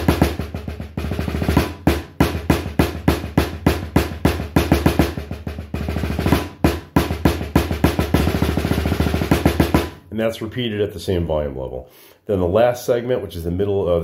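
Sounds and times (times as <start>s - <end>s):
snare drum played with sticks: 0.0s - 10.0s.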